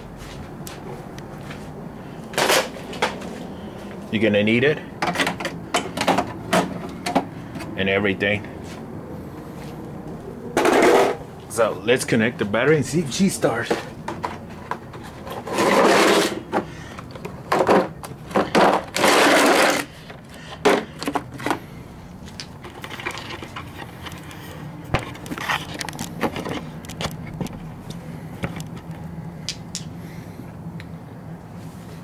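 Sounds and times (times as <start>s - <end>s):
faint steady hum: 0.0s - 32.0s
scraping and rubbing: 10.6s - 11.2s, 13.7s - 16.6s, 17.5s - 20.0s, 22.4s - 27.2s.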